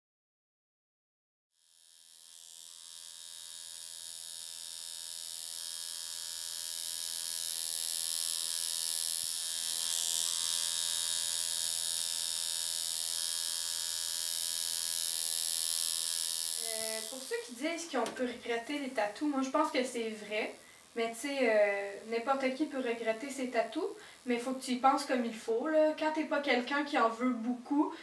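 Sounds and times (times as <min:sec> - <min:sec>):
tattoo machine buzzing: 0:01.6 - 0:25.3.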